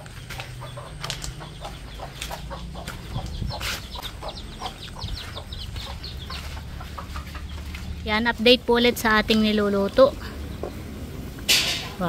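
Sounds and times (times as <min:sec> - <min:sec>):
footsteps in slippers on dirt: 0:00.0 - 0:09.9
chickens clucking: 0:00.0 - 0:12.0.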